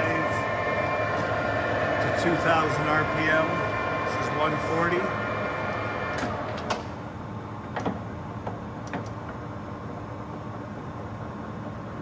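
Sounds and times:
lathe humming: 0.0 - 8.4.

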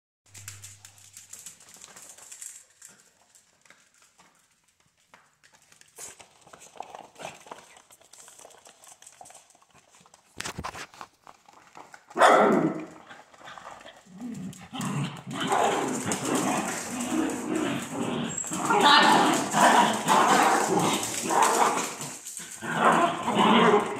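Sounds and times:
dog claws scrabbling on floor: 0.3 - 23.9
dogs vocalizing: 12.9 - 23.9.

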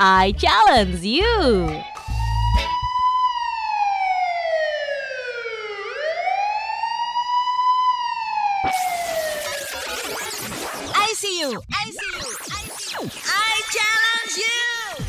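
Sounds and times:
jingle music: 0.0 - 2.2
wailing siren: 1.7 - 10.2.

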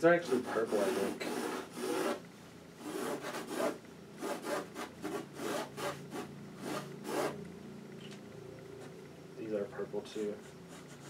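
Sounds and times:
marker scratching on paper: 0.2 - 2.2, 2.8 - 7.4, 10.2 - 11.0.

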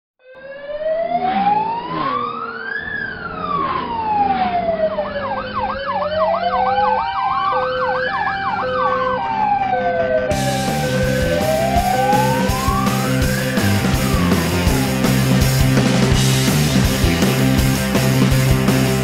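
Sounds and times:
fast yelping siren: 0.2 - 15.2
siren wailing: 0.2 - 16.6.

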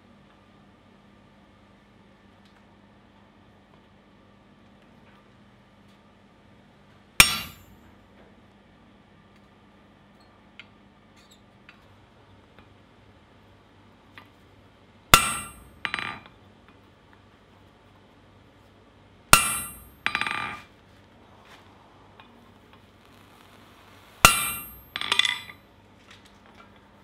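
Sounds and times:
hammer striking metal stamp: 7.2 - 7.6, 15.2 - 16.3, 19.4 - 20.6, 24.3 - 25.5.

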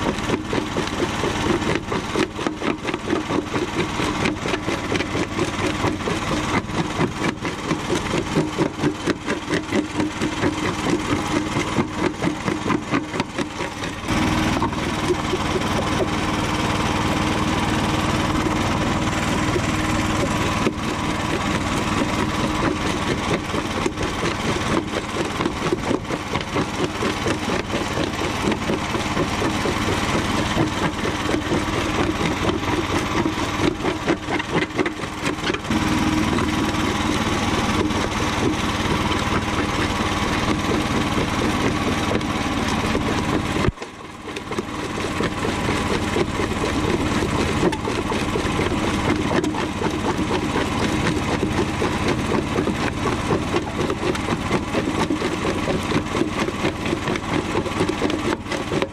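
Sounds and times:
concrete crunching and cracking: 0.0 - 58.9
jaw crusher pulsing: 0.0 - 58.9.

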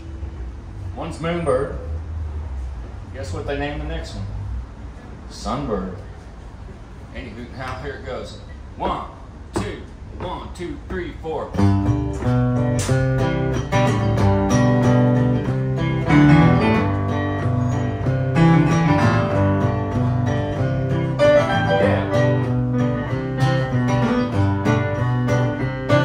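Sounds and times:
acoustic guitar strumming: 11.5 - 26.0
electric keyboard: 12.2 - 26.0.

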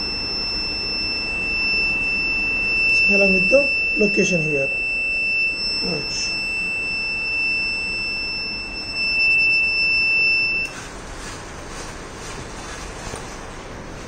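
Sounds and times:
high-pitched alert buzzer: 0.0 - 10.7.

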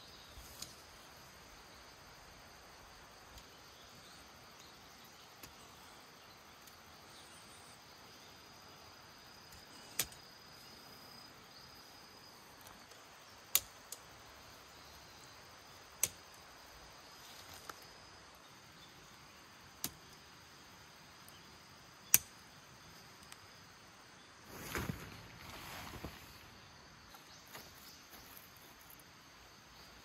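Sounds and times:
faint background hiss: 0.0 - 30.0
plastic clips snapping on poles: 9.5 - 10.2, 12.6 - 14.1, 16.0 - 16.3, 22.1 - 22.4.

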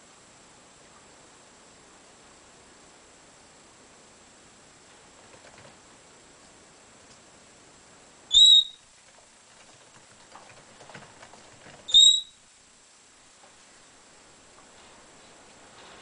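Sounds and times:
parrot whistled calls: 8.3 - 8.8, 11.9 - 12.4.

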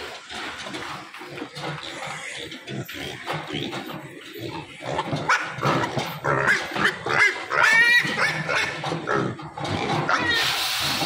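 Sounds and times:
pigs grunting and squealing: 0.0 - 11.0.

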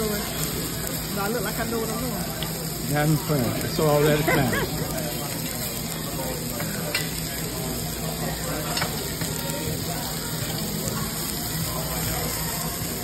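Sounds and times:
food sizzling on a grill pan: 0.0 - 13.0
metal tongs clicking on grill: 6.5 - 7.2, 8.6 - 9.5.

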